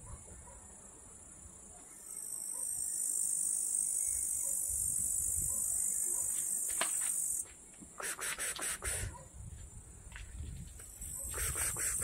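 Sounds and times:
high-pitched insect trill: 2.1 - 7.5.

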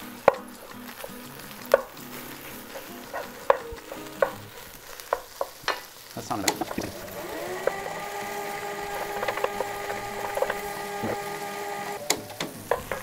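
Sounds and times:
small motor high-pitched hum: 6.9 - 12.0.

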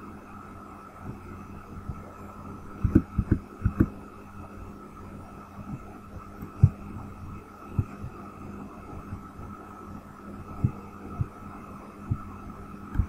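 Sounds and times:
steady electrical hum: 0.0 - 13.0.

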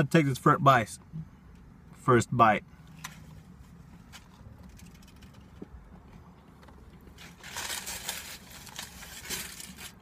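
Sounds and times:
low steady car cabin hum: 0.0 - 10.0.

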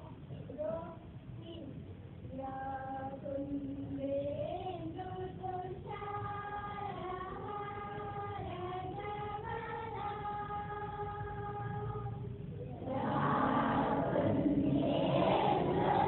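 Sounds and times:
children singing in unison: 4.5 - 12.2, 12.8 - 16.0.

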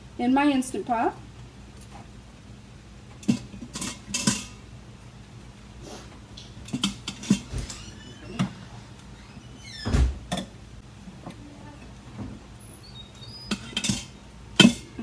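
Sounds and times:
metal tongs clinking on cookware: 3.2 - 4.6, 13.5 - 15.0.

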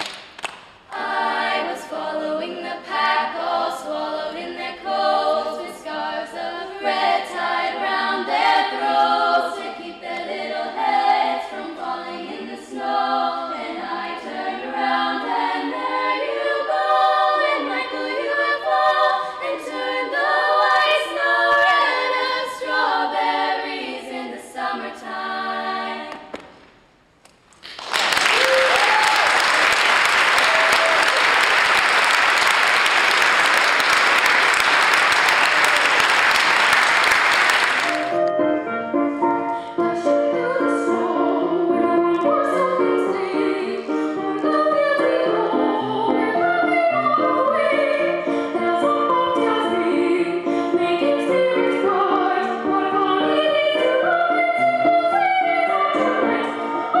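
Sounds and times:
girls' choir singing a cappella: 0.8 - 26.6, 39.6 - 57.0
audience applause: 27.6 - 38.2.

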